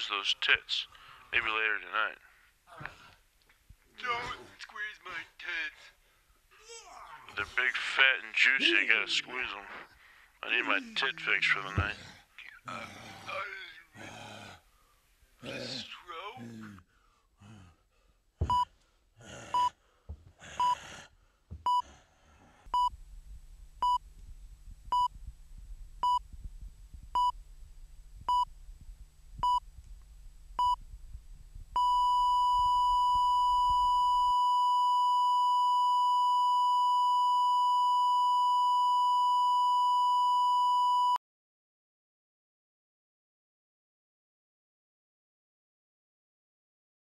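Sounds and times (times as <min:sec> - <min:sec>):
heart monitor beeping: 0:18.4 - 0:18.8, 0:19.5 - 0:20.8, 0:21.5 - 0:21.9, 0:22.7 - 0:23.0, 0:23.8 - 0:24.0, 0:24.9 - 0:25.2, 0:26.0 - 0:26.4, 0:27.0 - 0:27.4, 0:28.2 - 0:28.5, 0:29.4 - 0:29.7, 0:30.6 - 0:30.9, 0:31.7 - 0:41.2.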